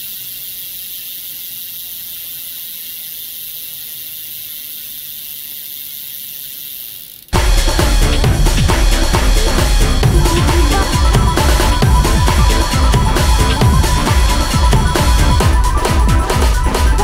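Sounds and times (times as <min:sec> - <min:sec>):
bicycle chain whirring: 0:00.0 - 0:17.0
electronic music: 0:07.4 - 0:17.0.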